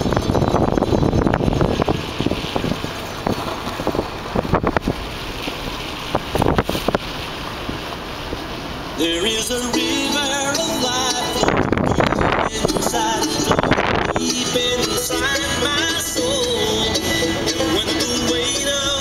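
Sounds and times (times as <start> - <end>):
road and wind noise in car: 0.0 - 19.0
music: 9.2 - 19.0.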